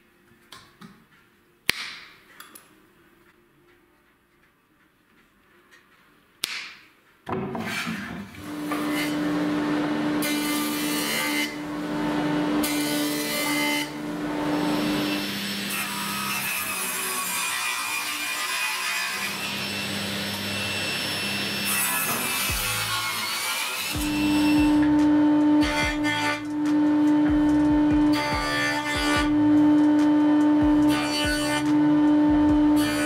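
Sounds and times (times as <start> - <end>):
jointer planing wood: 7.6 - 33.0
table saw cutting wood: 7.6 - 33.0.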